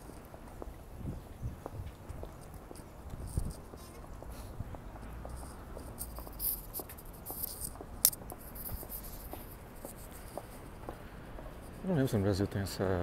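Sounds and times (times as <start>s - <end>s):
footsteps walking: 0.0s - 11.8s
sharp click: 7.4s - 8.4s.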